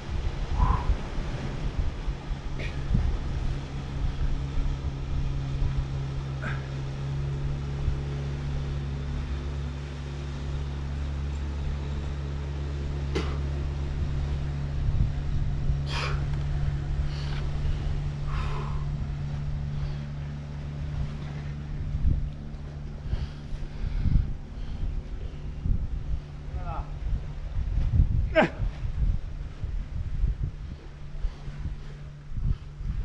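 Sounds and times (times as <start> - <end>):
engine drone: 0.0 - 33.0
wind on microphone: 0.0 - 33.0.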